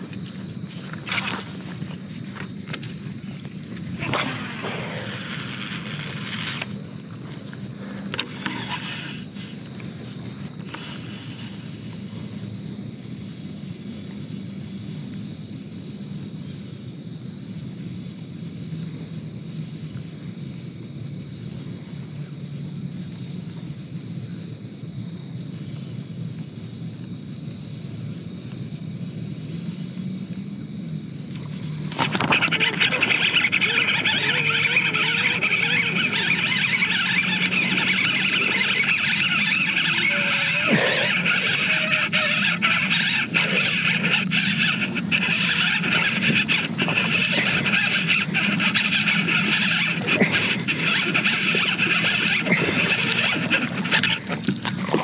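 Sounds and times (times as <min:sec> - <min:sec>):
crickets and insects calling: 0:00.0 - 0:55.0.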